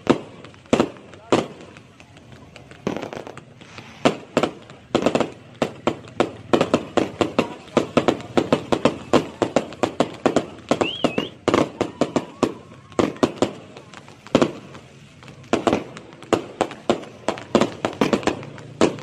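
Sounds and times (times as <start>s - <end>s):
fireworks bangs and cracks: 0.0s - 19.0s
firework wavering whistle: 8.4s - 14.9s.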